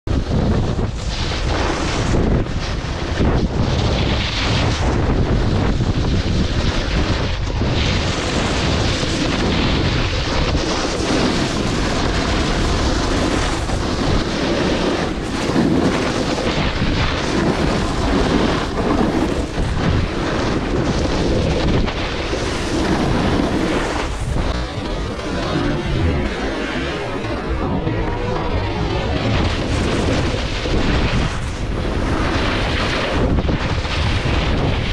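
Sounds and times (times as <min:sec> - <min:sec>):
wind buffeting microphone: 0:00.1 - 0:34.9
skis scraping on snow: 0:10.6 - 0:19.6, 0:20.2 - 0:33.2.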